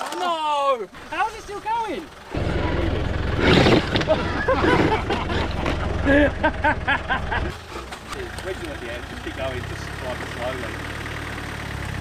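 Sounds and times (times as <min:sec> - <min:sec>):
truck engine idling: 0:00.9 - 0:12.0.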